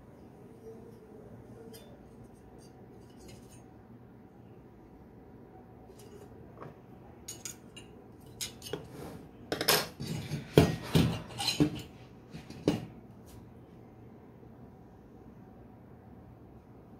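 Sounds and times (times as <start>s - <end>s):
metal clinking on a table: 7.3s - 8.8s.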